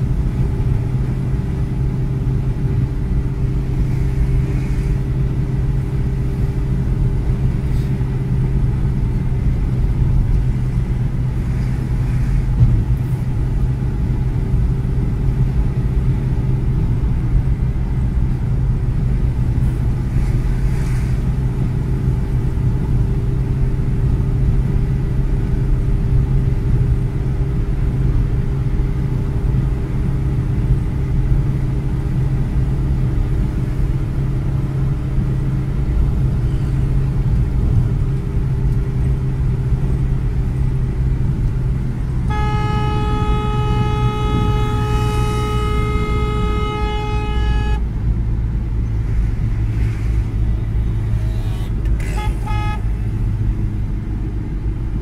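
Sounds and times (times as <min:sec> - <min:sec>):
car engine and tyre rumble: 0:00.0 - 0:55.0
vehicle horn: 0:42.0 - 0:48.0, 0:50.8 - 0:53.0.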